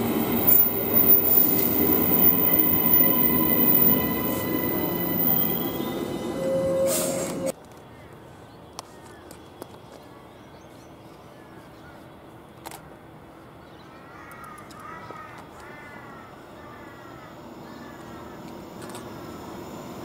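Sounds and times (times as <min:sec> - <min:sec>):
crow cawing: 0:14.0 - 0:18.4.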